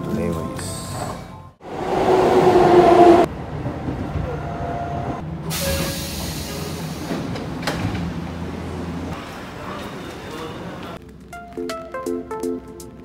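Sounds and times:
low train rumble: 0.6s - 11.1s
train running with whining tones: 1.6s - 10.9s.

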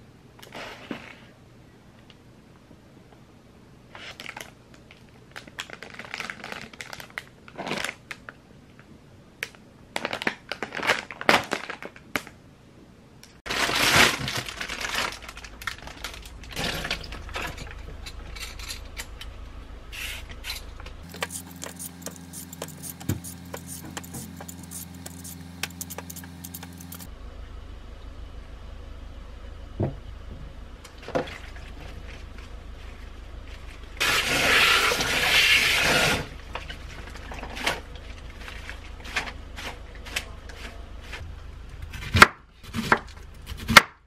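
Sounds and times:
packaging crinkling and rustling: 4.1s - 8.4s, 10.0s - 12.3s, 13.5s - 17.8s
steady low hum: 15.3s - 35.3s, 36.2s - 43.7s
peeler scraping a carrot: 21.0s - 27.1s.

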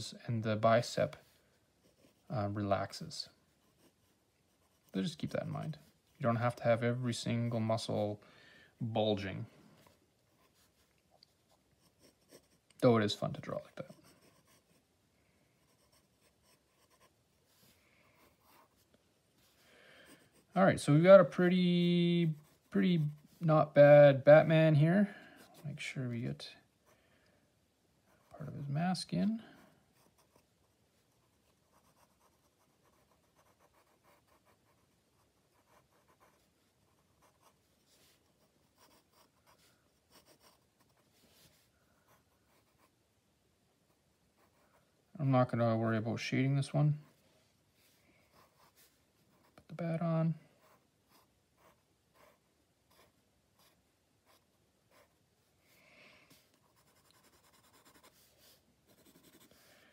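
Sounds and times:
pencil scratching on paper: 1.8s - 2.4s, 3.5s - 6.6s, 11.5s - 12.7s, 13.6s - 14.9s, 15.6s - 18.8s, 29.9s - 42.9s, 43.9s - 44.8s, 48.3s - 49.7s, 50.6s - 55.2s, 56.5s - 59.6s.

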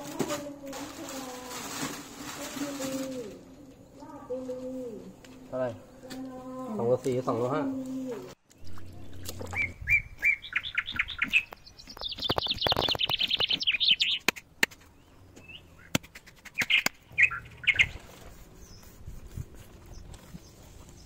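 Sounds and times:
songbird calling: 5.8s - 19.0s.

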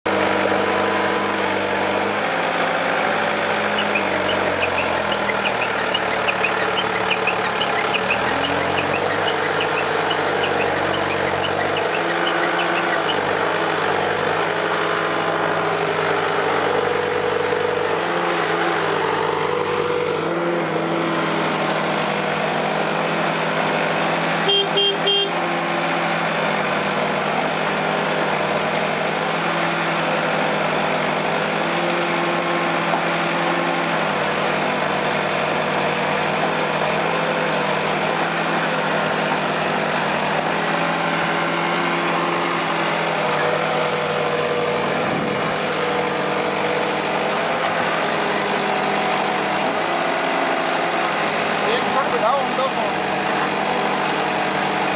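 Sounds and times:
diesel engine running: 0.0s - 54.9s
short horn beeps: 3.6s - 13.3s, 24.4s - 25.4s.

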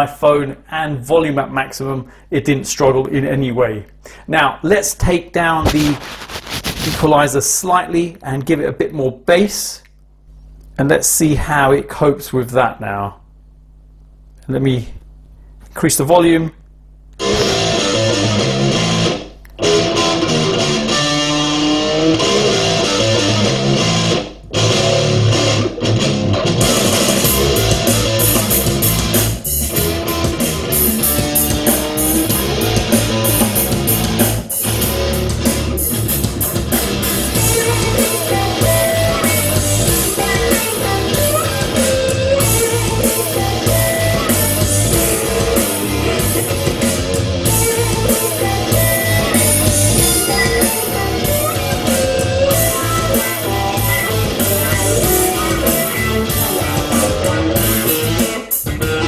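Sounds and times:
rock-funk music with electric guitar: 17.2s - 59.0s.

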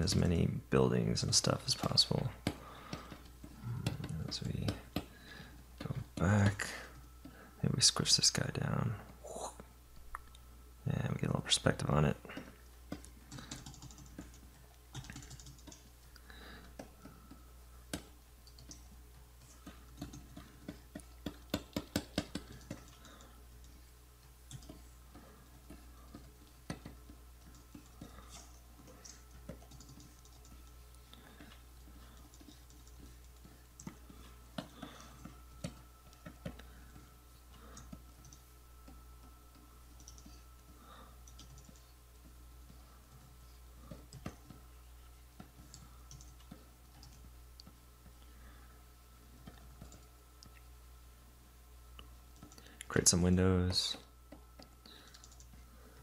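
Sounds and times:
low steady hum: 0.0s - 56.0s
computer keyboard clicks: 12.9s - 15.9s, 17.9s - 18.9s, 19.5s - 23.7s, 24.5s - 30.8s, 37.7s - 38.4s, 39.5s - 40.3s, 41.2s - 41.9s, 45.5s - 47.3s, 54.6s - 55.6s.

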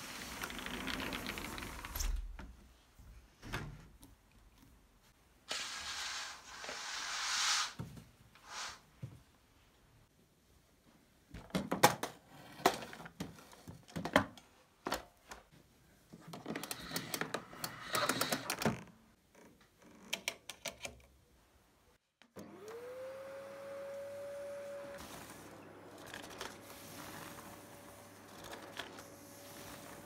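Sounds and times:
vacuum cleaner motor whine: 22.4s - 30.0s.

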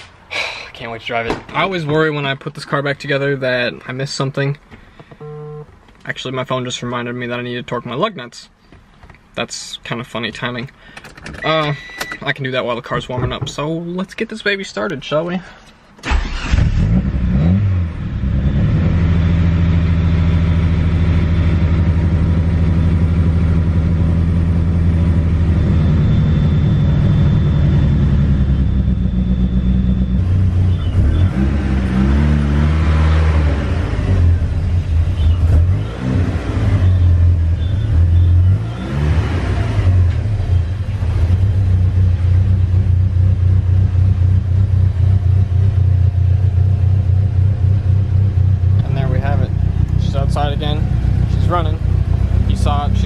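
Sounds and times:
car engine idling and revving: 16.1s - 53.0s.

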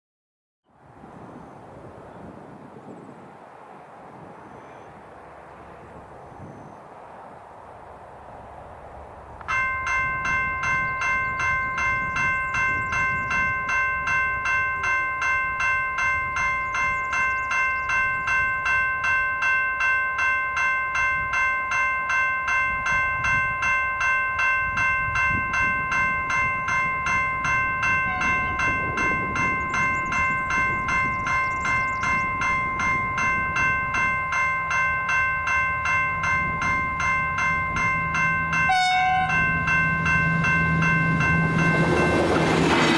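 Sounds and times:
train engine hum: 0.8s - 42.9s
level crossing warning bell: 9.4s - 42.9s.

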